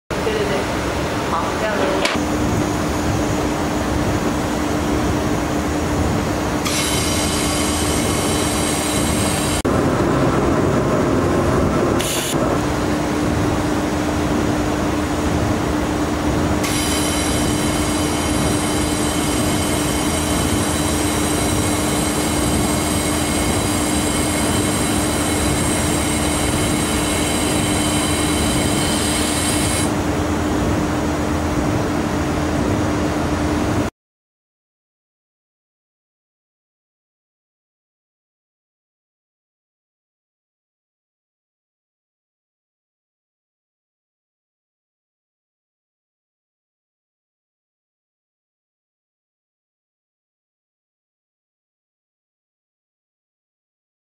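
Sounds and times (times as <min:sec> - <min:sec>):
high many-toned whine: 0:00.1 - 0:33.9
steady machine hum: 0:00.1 - 0:33.9.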